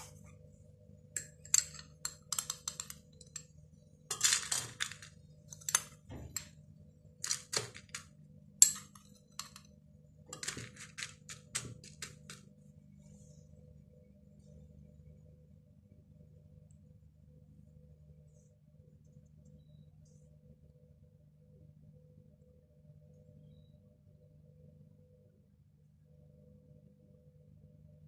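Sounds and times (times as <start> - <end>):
metal spoon clinking on glass: 1.2 - 3.5, 4.1 - 5.0, 8.6 - 9.6
crumbs rattling into glass: 4.1 - 6.5, 10.3 - 12.4.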